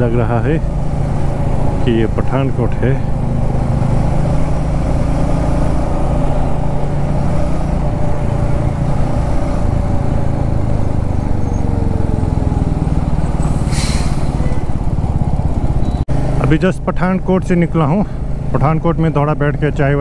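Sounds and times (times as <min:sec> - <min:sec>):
motorcycle engine running: 0:00.0 - 0:13.4, 0:14.3 - 0:20.0
road noise: 0:00.0 - 0:20.0
passing lorry hiss: 0:13.3 - 0:14.6.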